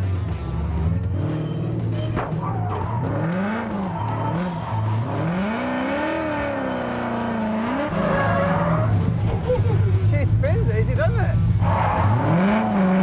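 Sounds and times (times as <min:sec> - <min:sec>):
car engine revving: 0:00.0 - 0:13.0
tyres squealing: 0:01.3 - 0:10.0.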